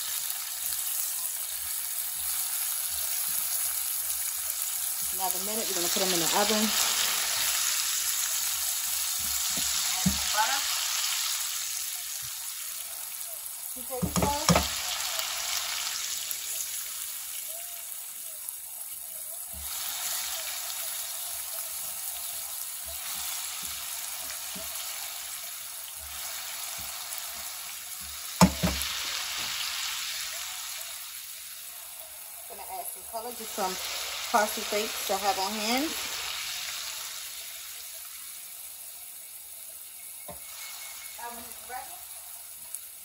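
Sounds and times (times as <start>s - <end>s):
meat sizzling in a frying pan: 0.0s - 43.0s
spatula knocking on pan: 9.2s - 10.4s, 13.9s - 14.8s, 28.0s - 28.9s
spatula scraping a pan: 19.5s - 29.8s, 40.2s - 41.6s.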